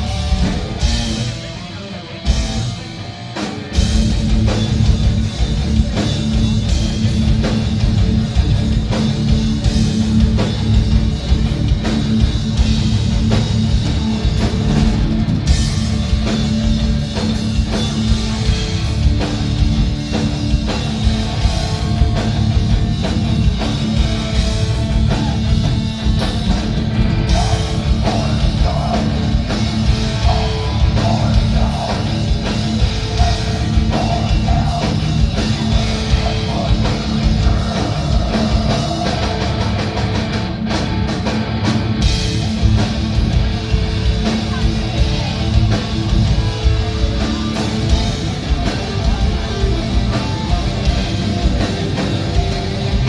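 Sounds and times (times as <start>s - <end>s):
heavy metal band playing live: 0.0s - 53.0s.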